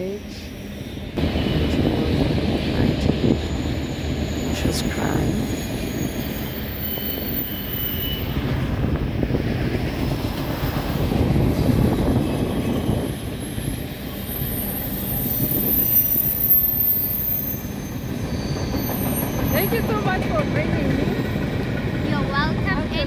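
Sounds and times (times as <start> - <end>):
train rumbling past: 0.0 - 23.0
wheel squeals: 3.5 - 8.8, 12.0 - 21.4.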